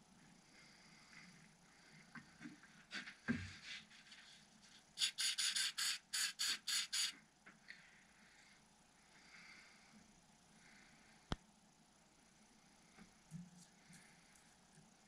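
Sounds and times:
spray bottle hisses: 0:05.0 - 0:07.2.

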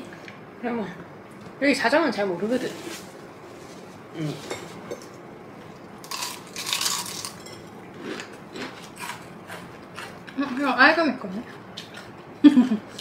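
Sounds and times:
crunchy food being chewed: 0:06.0 - 0:10.7, 0:11.4 - 0:12.2.

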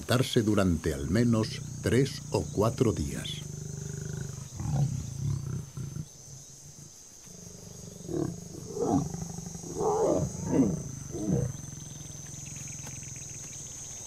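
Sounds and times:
male lion roaring: 0:07.3 - 0:12.2.

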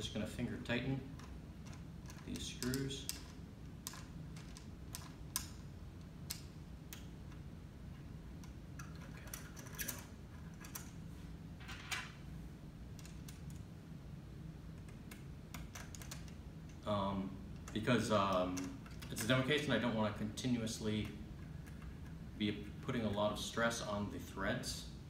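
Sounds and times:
low steady hum: 0:00.0 - 0:25.0
small metallic clicks and scrapes: 0:08.4 - 0:11.0.

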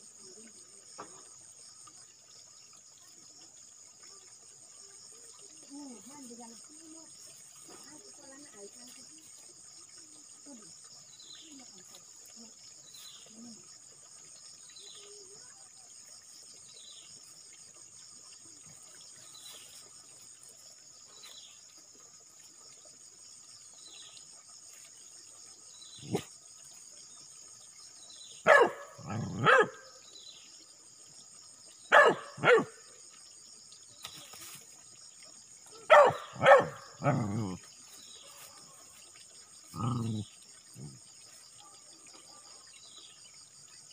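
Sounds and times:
insects chirring: 0:00.0 - 0:43.9
dogs barking: 0:28.4 - 0:29.9, 0:31.9 - 0:32.8, 0:35.9 - 0:37.6.

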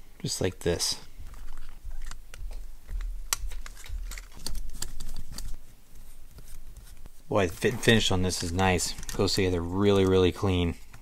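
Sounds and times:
small plastic parts clicking: 0:01.2 - 0:05.6, 0:08.3 - 0:10.2.

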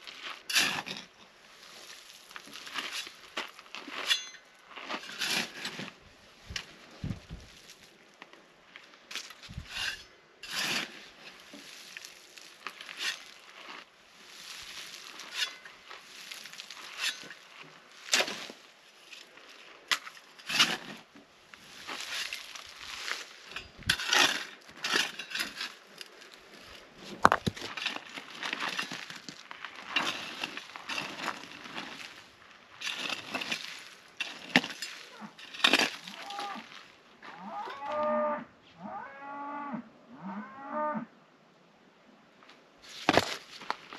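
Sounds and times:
metal shovel scraping ash and stones: 0:00.0 - 0:07.9, 0:08.8 - 0:37.4, 0:42.8 - 0:43.9
cow mooing: 0:37.4 - 0:41.1.

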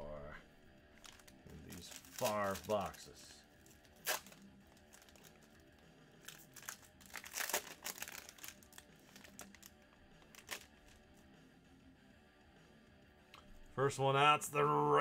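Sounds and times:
faint background music: 0:00.0 - 0:15.0
foil wrapper crinkling: 0:00.9 - 0:11.0.

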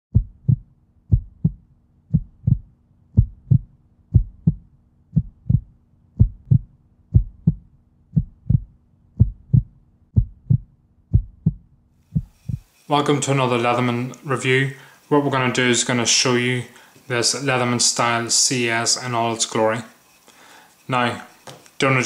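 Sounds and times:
heartbeat thumps: 0:00.1 - 0:12.7
faint steady hum: 0:00.2 - 0:22.0.

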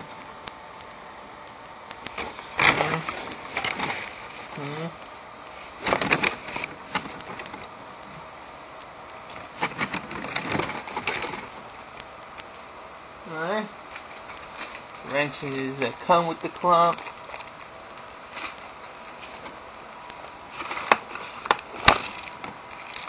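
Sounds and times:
plastic case rustling and clicking: 0:05.8 - 0:07.7, 0:09.3 - 0:11.6, 0:20.5 - 0:23.0.

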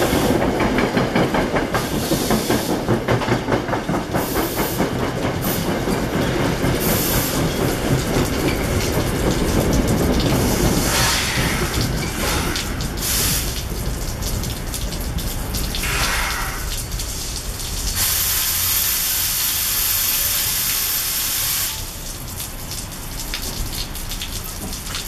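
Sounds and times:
train coaches rolling to a stop: 0:00.0 - 0:23.6
steady rain: 0:00.0 - 0:25.0
loud even hiss: 0:10.5 - 0:13.6, 0:15.8 - 0:16.7, 0:17.9 - 0:22.0.

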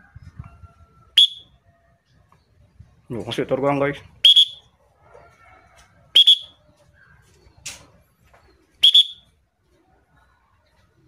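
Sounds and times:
shrill whistle blasts: 0:01.2 - 0:01.5, 0:04.2 - 0:04.7, 0:06.2 - 0:06.6, 0:08.8 - 0:09.3.

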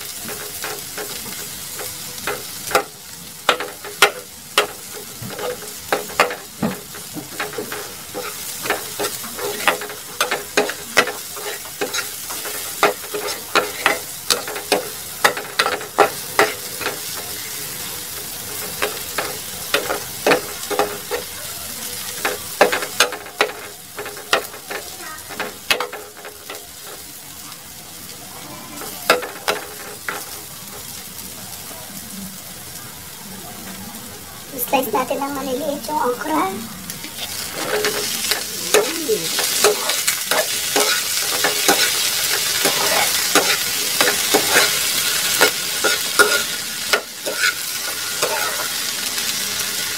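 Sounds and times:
spatula scraping a pan: 0:00.0 - 0:02.9, 0:03.5 - 0:17.6, 0:28.5 - 0:30.8, 0:37.1 - 0:48.9
onion and garlic sizzling in oil: 0:00.0 - 0:49.9.

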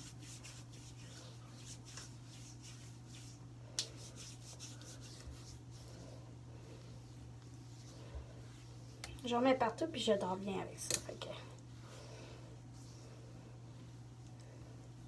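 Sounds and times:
hands rubbing skin: 0:00.0 - 0:09.2
steady low hum: 0:00.0 - 0:15.0.

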